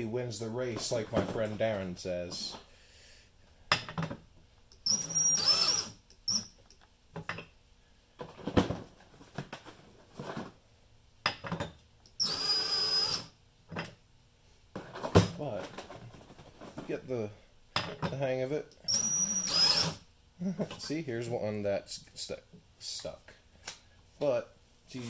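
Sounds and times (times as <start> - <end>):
cordless drill whining: 4.8 - 6.5, 12.2 - 13.3, 18.9 - 20.0.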